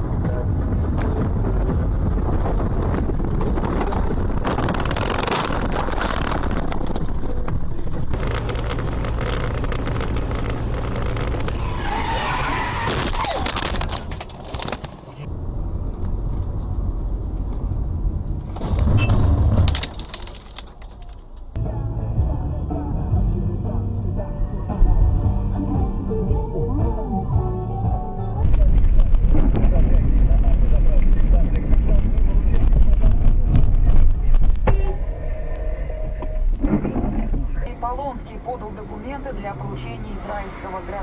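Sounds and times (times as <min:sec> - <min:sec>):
tyres skidding: 0:00.0 - 0:15.3
road and engine noise: 0:00.0 - 0:27.4, 0:28.1 - 0:41.0.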